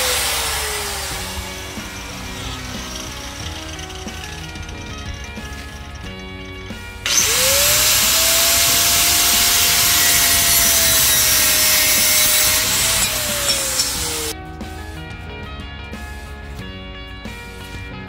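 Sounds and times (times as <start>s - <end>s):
angle grinder grinding metal: 0.0s - 14.4s.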